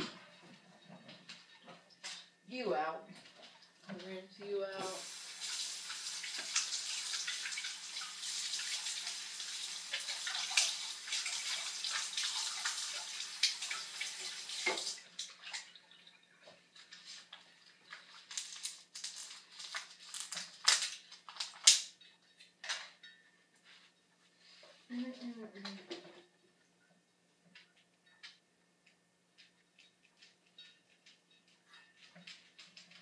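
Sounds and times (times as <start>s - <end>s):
tap water running: 4.6s - 18.5s.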